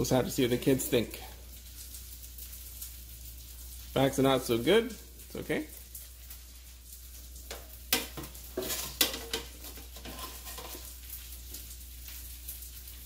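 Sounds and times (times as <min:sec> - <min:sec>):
oil sizzling in a frying pan: 0:00.0 - 0:13.0
metal tongs scraping a basket: 0:08.6 - 0:10.9.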